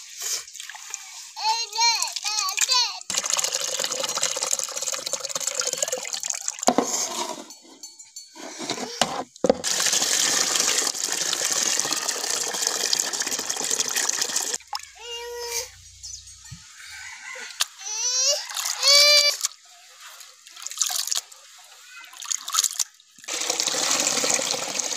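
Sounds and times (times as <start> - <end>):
water sloshing in a metal basin: 0.0 - 1.4, 19.4 - 24.9
water stream pouring: 0.0 - 7.2, 9.4 - 15.2, 20.2 - 24.9.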